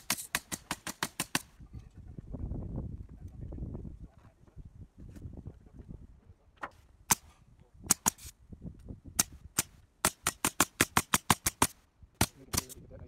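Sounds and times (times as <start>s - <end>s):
nailer firing into metal: 9.2s - 12.8s.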